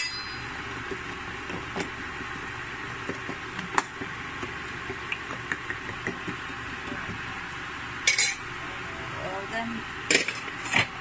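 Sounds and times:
metal spoon clinking on pot: 0.0 - 0.5, 8.1 - 8.4.

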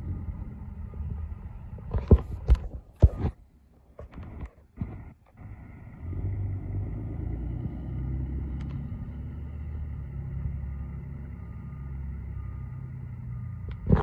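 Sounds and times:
faint beeping: 0.0 - 2.3, 9.0 - 14.0
truck engine rumbling: 0.0 - 14.0.

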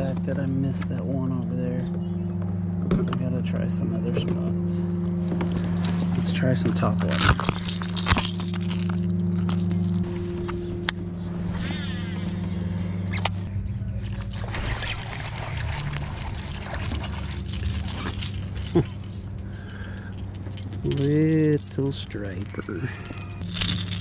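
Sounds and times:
steady low drone: 0.0 - 24.0.

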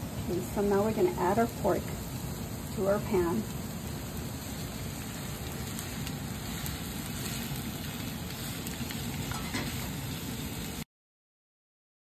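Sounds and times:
meat sizzling in a frying pan: 0.0 - 10.8
spatula scraping and tapping: 9.3 - 9.9.

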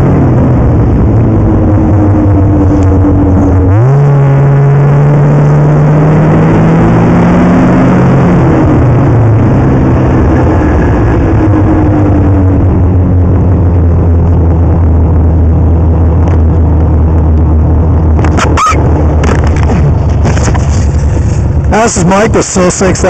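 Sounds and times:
snowmobile engine revving: 0.0 - 12.0, 18.2 - 23.0.

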